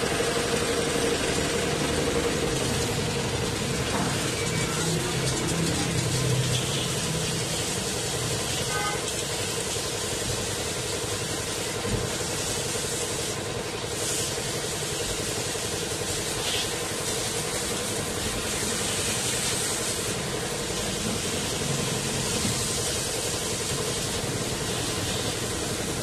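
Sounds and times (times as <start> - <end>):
machine hum: 0.0 - 9.0, 17.9 - 26.0
water jet hissing: 0.0 - 26.0.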